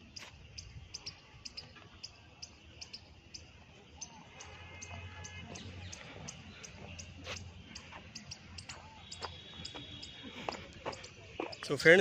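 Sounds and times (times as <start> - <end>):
faint footsteps: 4.5 - 12.0.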